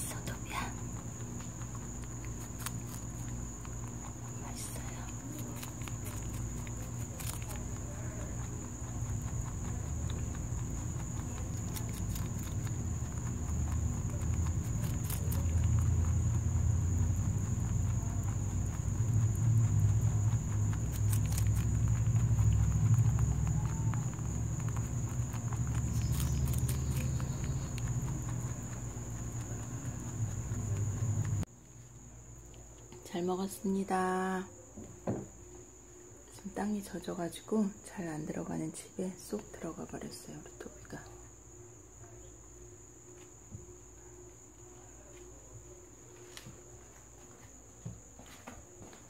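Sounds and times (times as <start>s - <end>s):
low hum: 0.0s - 32.8s
rabbit chewing: 0.0s - 34.6s
insects droning: 0.0s - 49.0s.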